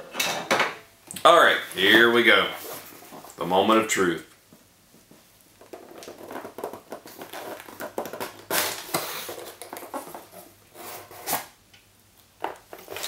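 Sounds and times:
cardboard scraping and rustling: 1.7 - 3.4, 5.6 - 11.5, 12.7 - 13.0.

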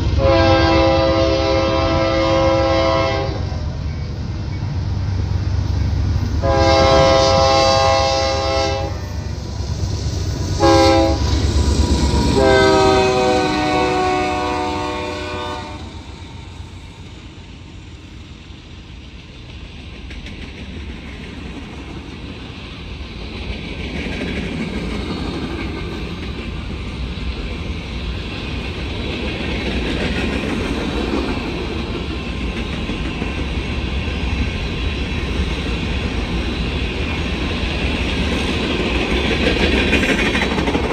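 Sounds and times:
locomotive engine drone: 0.0 - 20.2
locomotive air horn blasts: 0.2 - 3.6, 6.4 - 9.3, 10.6 - 11.4, 12.3 - 16.0.

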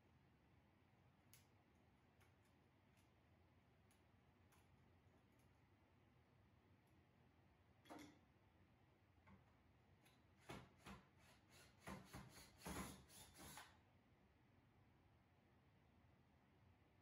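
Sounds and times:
cordless drill bursts: 11.2 - 13.7.

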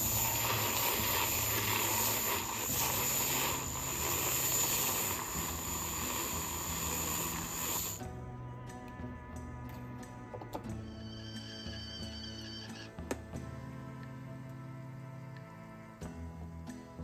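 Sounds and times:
milk frother whirring: 0.0 - 8.1
whisk hissing in milk: 0.0 - 8.2.

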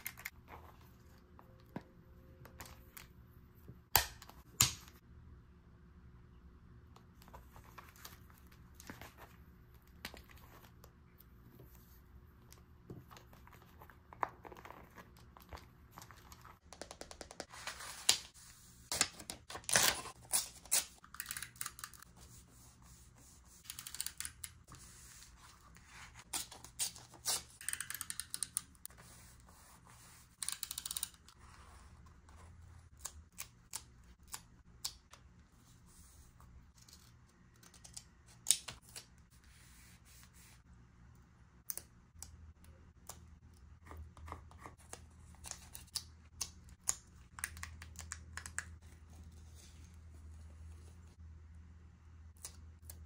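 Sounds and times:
paper and stickers rustling: 12.8 - 34.4.

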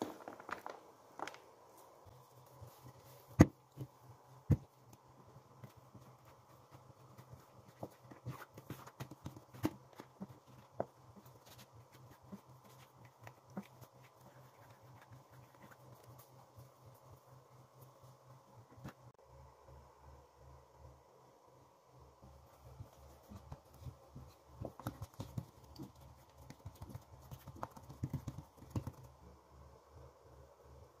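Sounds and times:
steady low hum: 0.9 - 31.0
dough taps and thuds: 3.3 - 5.0, 5.6 - 11.0, 23.3 - 29.1.

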